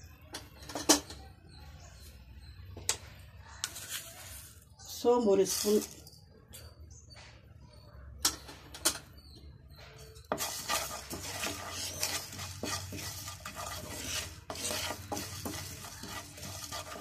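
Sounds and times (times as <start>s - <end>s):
wooden spatula scraping a pan: 10.2s - 17.0s.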